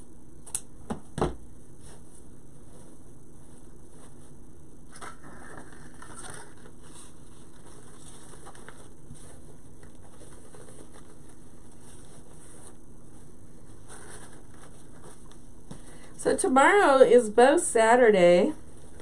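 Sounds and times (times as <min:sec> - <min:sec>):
steady low hum: 0:00.0 - 0:19.0
ribbon rustling and crinkling: 0:05.0 - 0:15.8.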